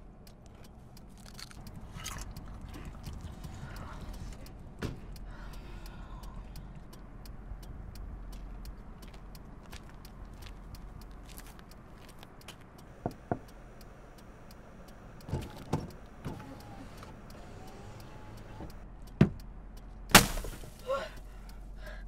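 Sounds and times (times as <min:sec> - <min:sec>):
car idling hum: 0:00.0 - 0:22.0
power window whine: 0:15.3 - 0:18.8.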